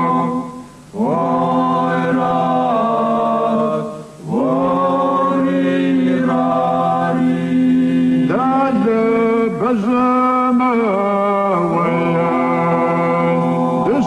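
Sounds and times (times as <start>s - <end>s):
men singing drone: 0.0s - 14.0s
man singing lead: 8.3s - 14.0s.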